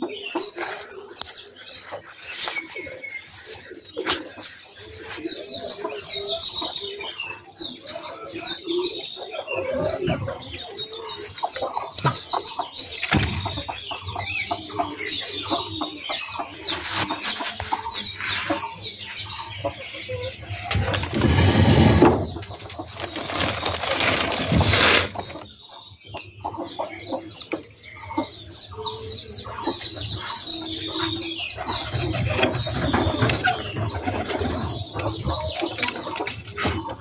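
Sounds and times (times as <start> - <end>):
chicks cheeping: 0.0 - 37.0
hen clucking: 9.3 - 37.0.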